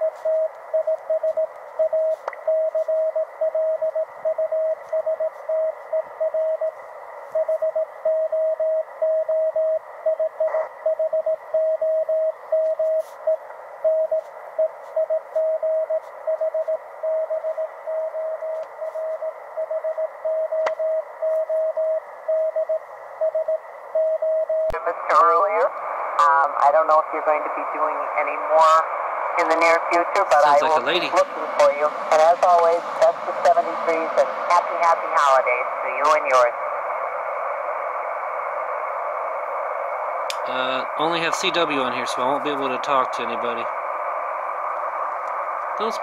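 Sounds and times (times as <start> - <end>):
morse code beeps: 0.0 - 6.8, 7.4 - 22.7
radio band noise hiss: 0.0 - 8.0, 9.8 - 11.0, 12.1 - 23.9, 24.8 - 46.0.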